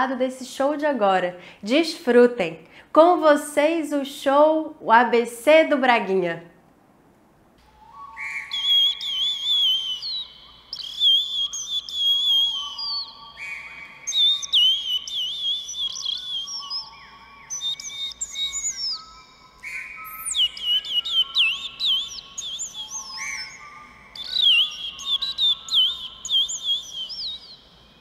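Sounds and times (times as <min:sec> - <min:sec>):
bird-call whistles warbling: 0:07.6 - 0:28.0
held whistle tones: 0:07.6 - 0:28.0.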